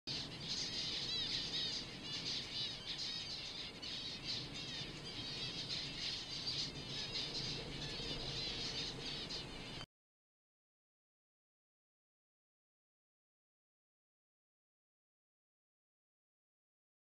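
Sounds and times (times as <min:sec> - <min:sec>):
finches calling: 0:00.1 - 0:09.8.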